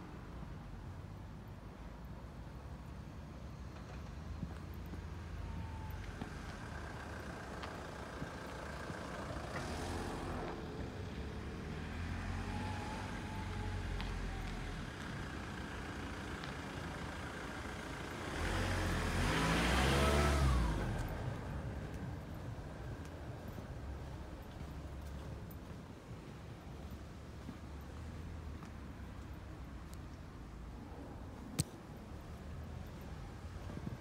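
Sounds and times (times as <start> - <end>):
vehicle driving past: 5.7 - 15.8, 17.8 - 25.2
low engine rumble: 19.7 - 34.0.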